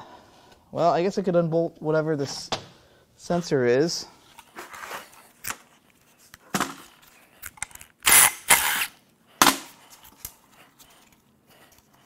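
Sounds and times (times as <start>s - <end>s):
power tool bursts: 8.0s - 8.9s.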